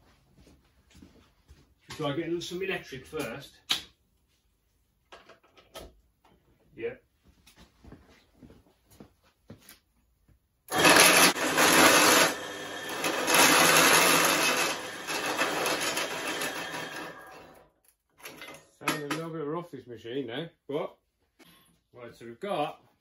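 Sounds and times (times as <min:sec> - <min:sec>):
drill motor hum: 0:10.7 - 0:17.6
hole saw grinding through steel: 0:10.7 - 0:17.7.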